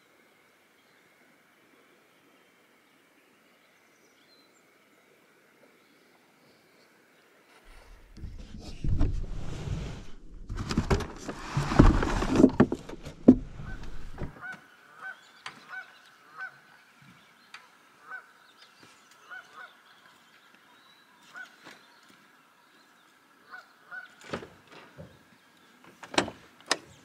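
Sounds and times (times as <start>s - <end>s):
gear rustling and knocking: 7.9s - 14.3s.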